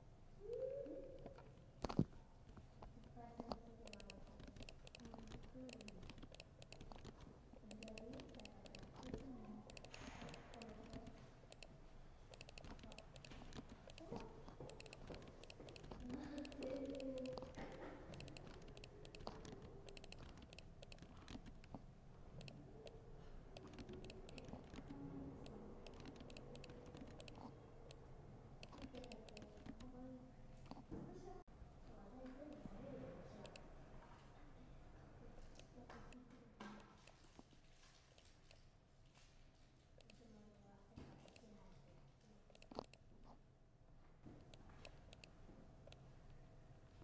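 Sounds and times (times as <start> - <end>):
laptop keyboard typing: 0.8 - 30.0, 33.4 - 33.7, 42.5 - 43.0, 44.4 - 46.0.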